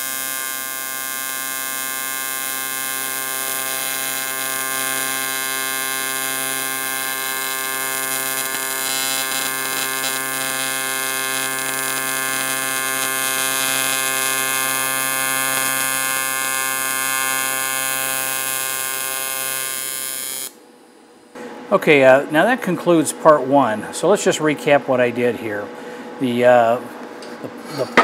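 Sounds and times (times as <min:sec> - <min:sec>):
welding arc buzzing and hissing: 0:00.0 - 0:20.6.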